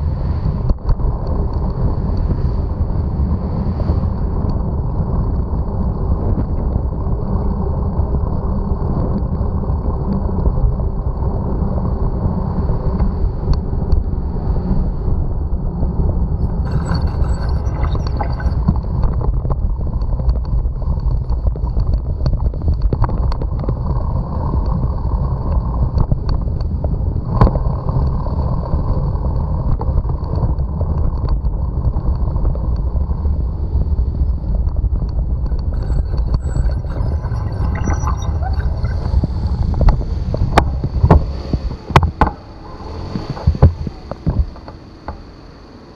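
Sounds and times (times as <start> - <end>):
wind and tyre noise: 0.0 - 45.9
faint high whine: 8.4 - 19.8, 33.4 - 45.9.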